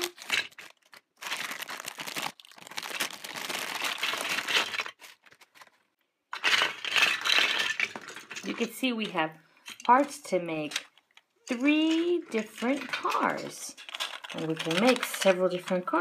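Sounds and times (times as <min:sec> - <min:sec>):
plastic bag crinkling: 0:00.0 - 0:05.9, 0:11.8 - 0:15.7
plastic bricks clattering: 0:00.0 - 0:16.0.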